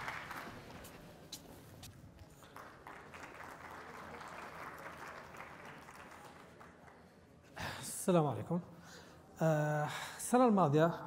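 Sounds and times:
audience applause: 0.0s - 1.0s, 2.4s - 7.2s
faint hall murmur: 0.0s - 11.0s.

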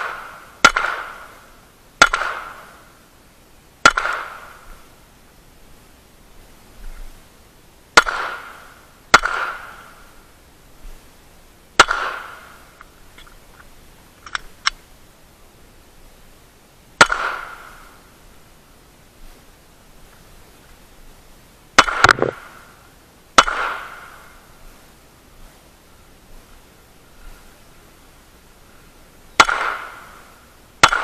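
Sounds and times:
handgun shots: 9.2s - 9.6s, 17.0s - 17.6s, 21.8s - 22.4s, 29.4s - 30.0s.

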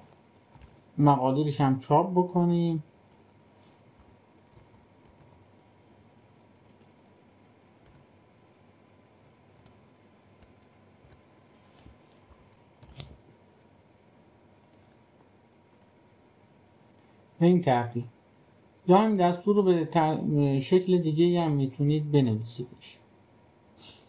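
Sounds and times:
keystrokes on a computer keyboard: 0.4s - 0.9s, 3.0s - 5.6s, 6.6s - 8.1s, 9.2s - 11.3s, 12.3s - 13.2s, 14.6s - 15.1s, 15.7s - 16.0s.

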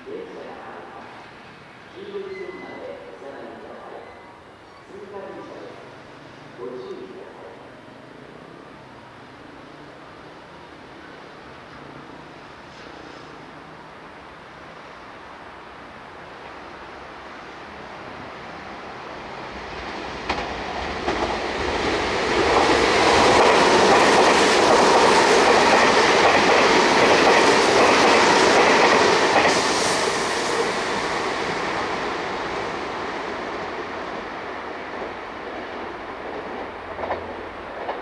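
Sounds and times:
train wheels rumbling on rail: 18.6s - 38.0s.

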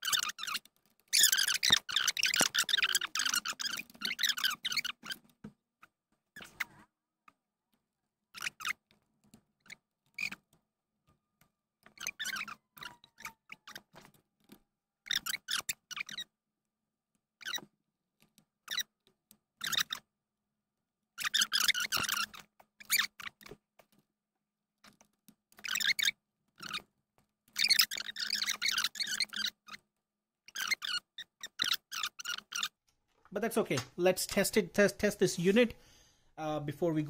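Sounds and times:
plastic parts clicking and rattling: 0.0s - 8.0s, 8.6s - 16.2s.

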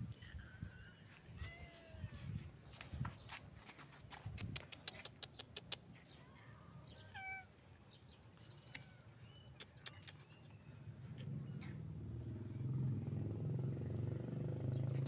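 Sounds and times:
faint cat meows: 1.3s - 2.3s, 7.0s - 7.5s, 8.6s - 9.2s.

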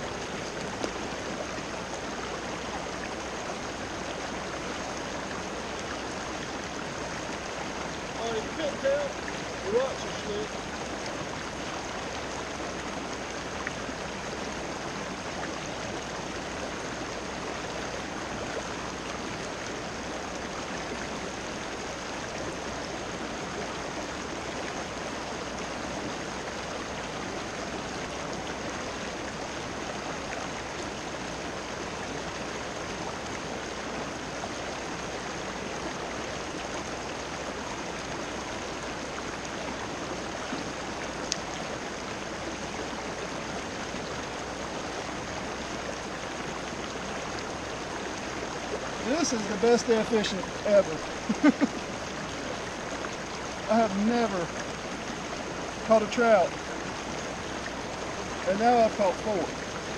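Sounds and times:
river water rushing over rocks: 0.0s - 59.9s.

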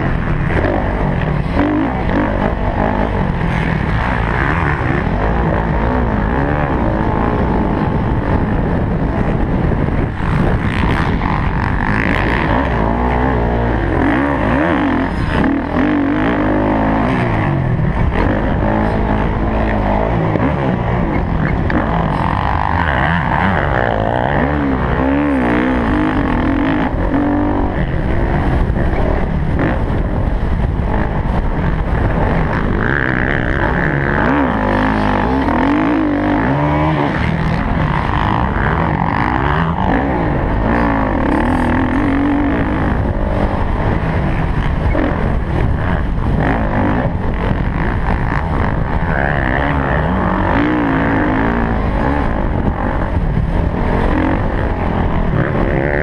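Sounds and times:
dirt bike engine revving: 0.0s - 56.0s
wind rush on microphone: 0.0s - 56.0s.

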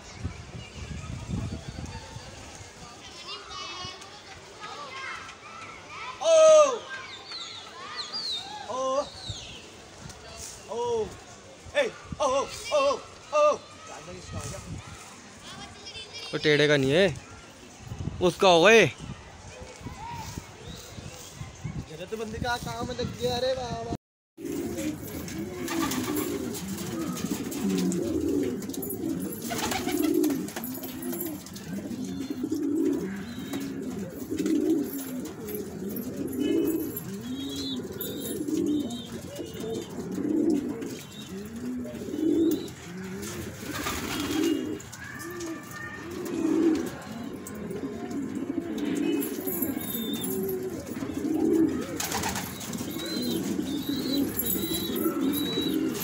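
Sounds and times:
pigeons cooing: 24.4s - 56.0s.

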